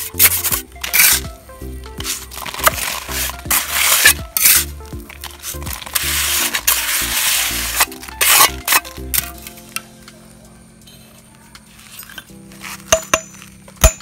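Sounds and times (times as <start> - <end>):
trowel scraping concrete mix: 0.0 - 1.2, 2.0 - 9.4
background music: 0.0 - 14.0.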